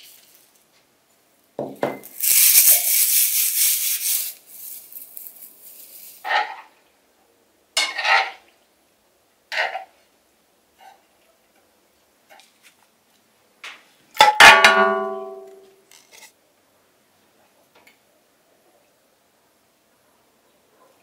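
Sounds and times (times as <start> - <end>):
metal pot ringing: 14.3 - 15.6.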